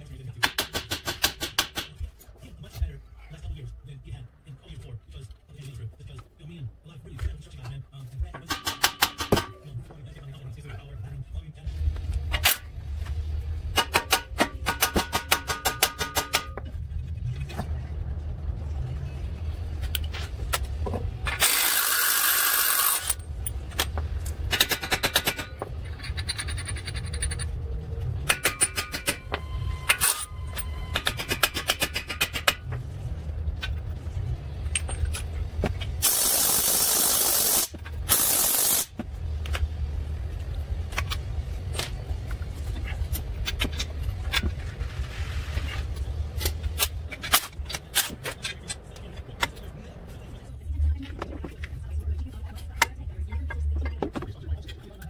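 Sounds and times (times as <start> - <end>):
hand tools clicking and knocking: 0.4 - 2.1, 8.4 - 9.7, 13.7 - 16.8, 19.8 - 27.5, 28.2 - 32.8, 34.6 - 36.7, 40.9 - 44.6
impact wrench running: 21.3 - 23.3, 36.0 - 38.9.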